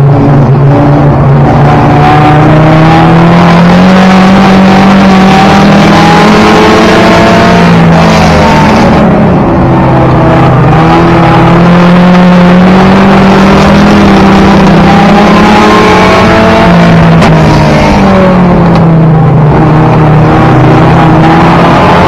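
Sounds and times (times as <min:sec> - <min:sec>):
race car engine at high revs: 0:00.0 - 0:22.0
road and wind noise: 0:00.0 - 0:22.0.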